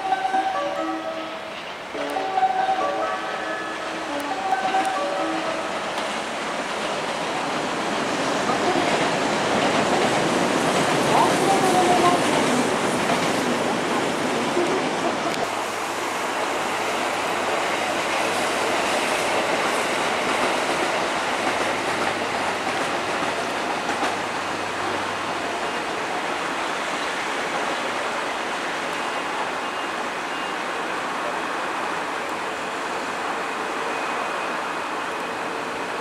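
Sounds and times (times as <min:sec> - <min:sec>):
train wheels rumbling on rails: 0:01.4 - 0:36.0.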